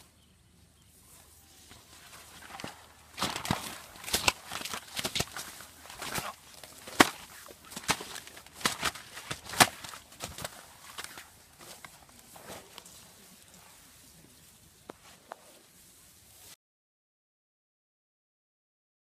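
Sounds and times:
plastic hoop crackling and knocking: 2.2 - 12.9.

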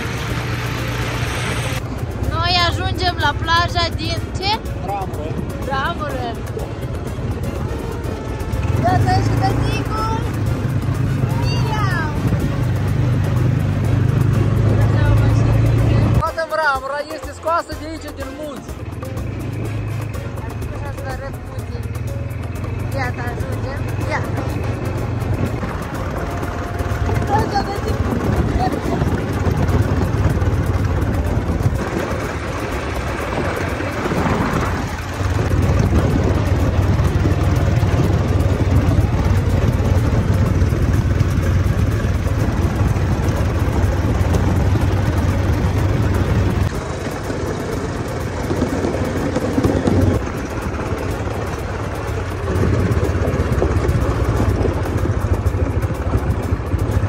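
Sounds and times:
quad bike engine drone: 0.0 - 57.0
tyres on gravel: 17.2 - 57.0.

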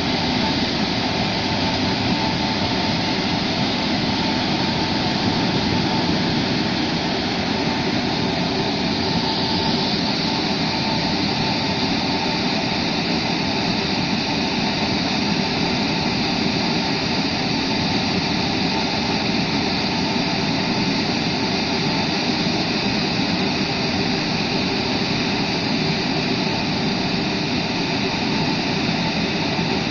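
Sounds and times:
air dryer blowers rushing: 0.0 - 29.9
faint steady hum: 0.0 - 29.9.

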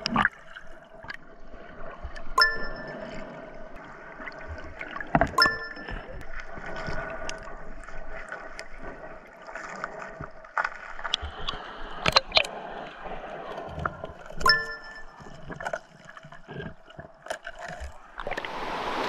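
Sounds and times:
knocks and clicks underwater: 0.0 - 1.2, 4.3 - 9.1, 9.7 - 18.5
short ringing ping: 2.4 - 3.1, 5.4 - 6.1, 14.5 - 15.1.

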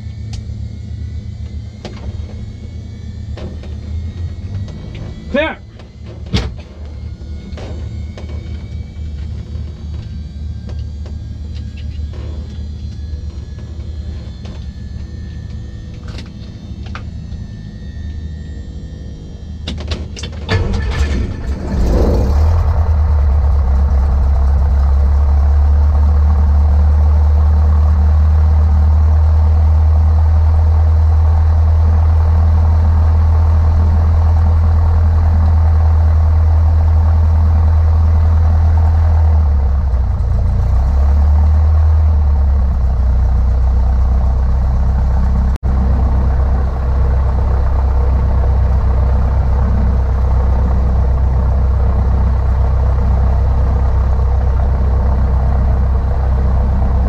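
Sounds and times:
aircraft engine idling: 0.0 - 57.0
engine cranking: 20.2 - 26.0.

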